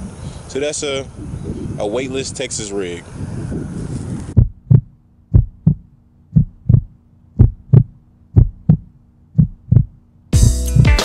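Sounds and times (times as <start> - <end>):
heartbeat thumps: 4.3 - 11.0.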